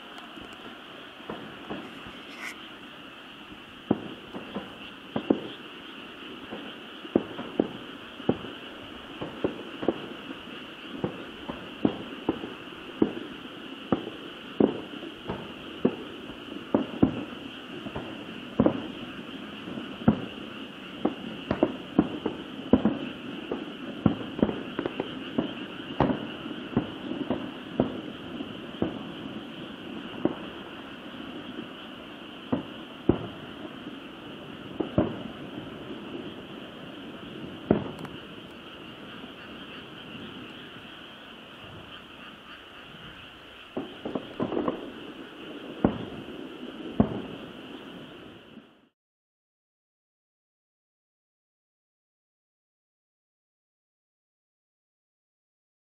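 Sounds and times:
distant fireworks bangs: 0:00.0 - 0:48.9
steady high hiss: 0:00.0 - 0:48.9.

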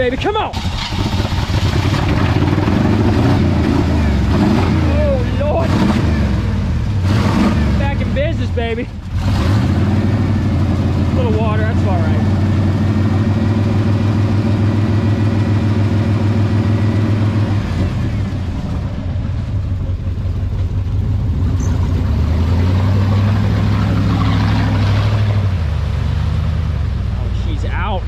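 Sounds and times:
buggy engine revving: 0:00.0 - 0:28.0
water and mud splashing: 0:21.8 - 0:28.0.

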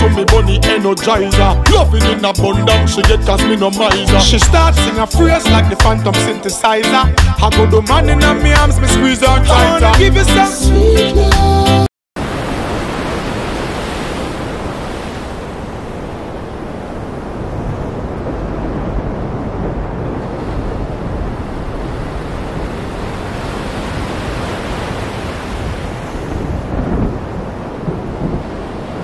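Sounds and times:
sea surf: 0:12.2 - 0:29.0
wind: 0:12.2 - 0:29.0.

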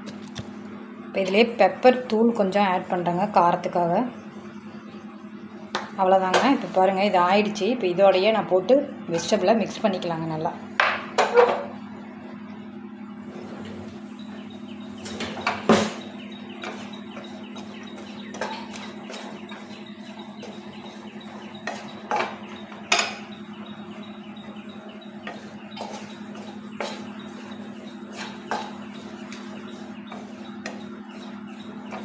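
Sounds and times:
steady low hum: 0:00.0 - 0:32.0
spatula stirring vegetables in pan: 0:16.6 - 0:22.7, 0:25.0 - 0:32.0
spatula knocking against pan: 0:25.2 - 0:32.0.

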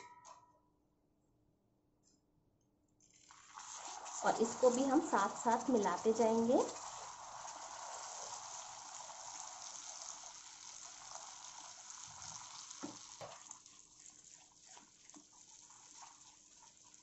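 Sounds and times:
caramel sizzling and bubbling: 0:03.1 - 0:17.0
spatula stirring: 0:12.2 - 0:17.0.

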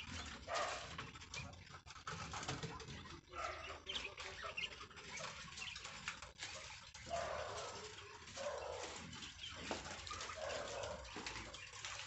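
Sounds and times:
quail chirping: 0:00.0 - 0:12.0
scuffling and rustling: 0:05.1 - 0:12.0.

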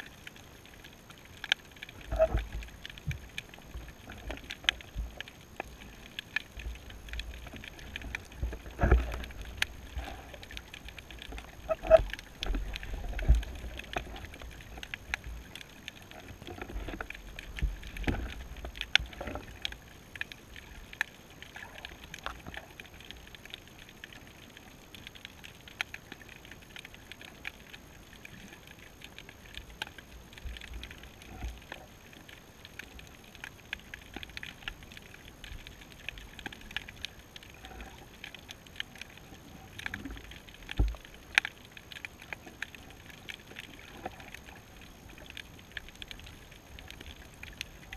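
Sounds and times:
underwater crackle of clicks: 0:00.0 - 0:47.9.

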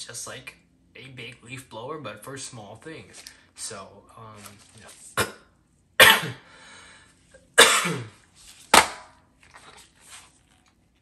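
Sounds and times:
man coughing hard: 0:05.2 - 0:06.5, 0:07.6 - 0:08.2.

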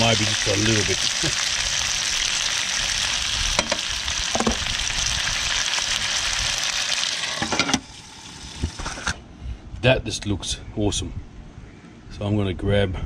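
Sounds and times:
fish sizzling in frying pan: 0:00.0 - 0:09.2
light knocks on pan: 0:03.6 - 0:04.6.

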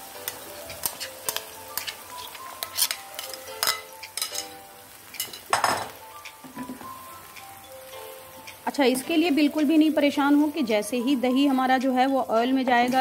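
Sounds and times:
chicken sizzling in oil: 0:00.0 - 0:13.0
wooden spoon scraping a pan: 0:00.6 - 0:04.5.

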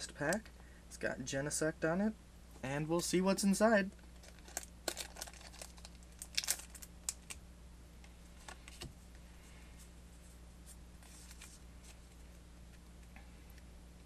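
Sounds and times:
foil wrapper tearing and crinkling: 0:04.2 - 0:07.4.

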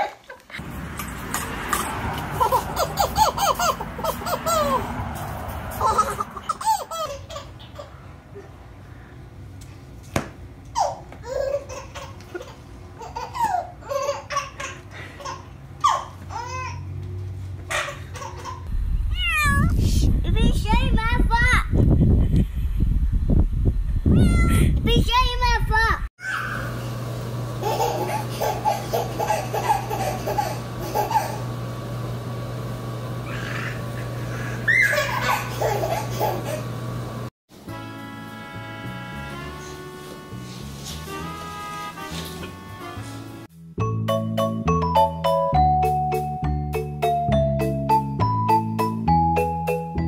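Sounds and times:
baby laughing: 0:01.4 - 0:08.5, 0:10.7 - 0:16.9, 0:17.7 - 0:18.7, 0:27.6 - 0:31.4, 0:33.2 - 0:36.7.

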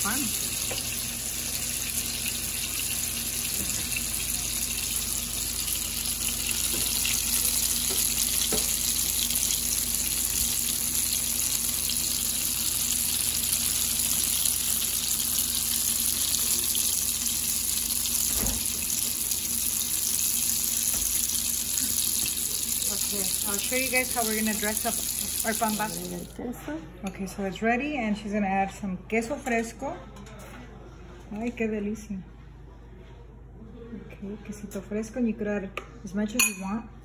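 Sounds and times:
hot oil sizzling: 0:00.0 - 0:26.3.

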